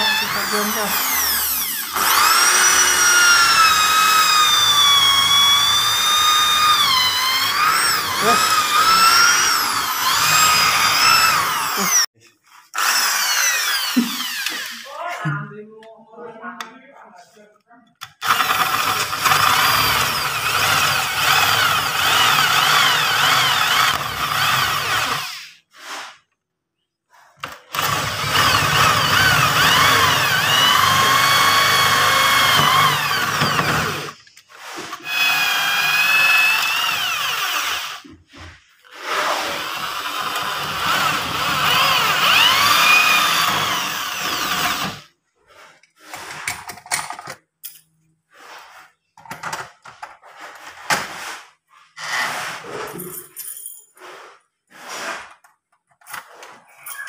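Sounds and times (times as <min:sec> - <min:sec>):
electric drill boring through wood: 0:00.0 - 0:14.9, 0:18.0 - 0:26.0, 0:27.4 - 0:45.1, 0:52.0 - 0:52.7.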